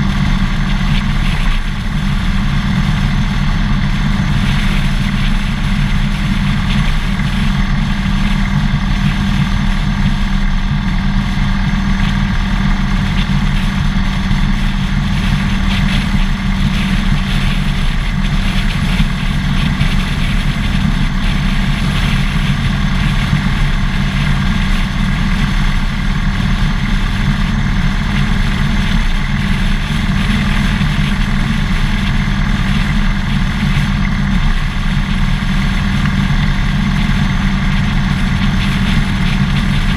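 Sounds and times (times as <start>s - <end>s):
motorcycle engine running at low revs: 0.0s - 39.9s.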